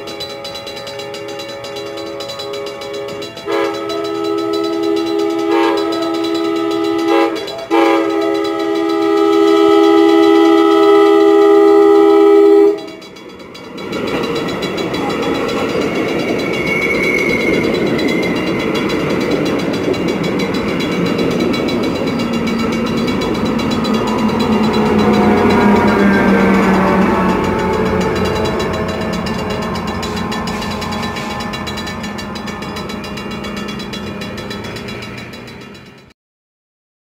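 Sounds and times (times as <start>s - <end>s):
train air horn blasts: 0.0s - 13.1s, 20.9s - 33.8s
train rolling past: 0.0s - 36.1s.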